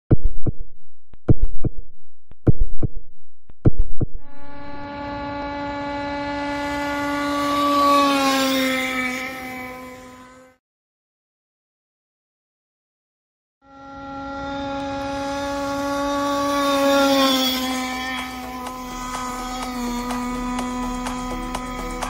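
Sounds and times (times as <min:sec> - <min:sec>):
small two-stroke engine running: 0:04.4 - 0:10.6, 0:13.6 - 0:22.0.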